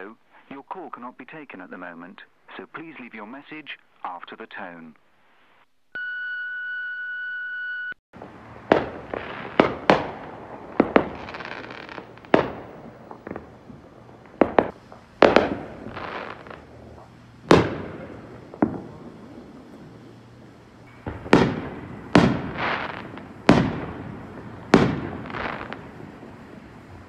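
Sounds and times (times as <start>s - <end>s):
voicemail beep: 6.0s - 8.0s
fireworks bangs: 8.2s - 27.0s
fireworks crackling: 8.2s - 27.0s.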